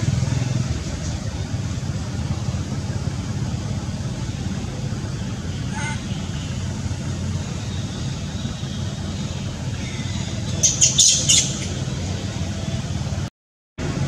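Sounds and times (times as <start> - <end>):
steady low rumble: 0.0 - 14.0
animal squeaking calls: 5.6 - 6.6, 9.7 - 11.8.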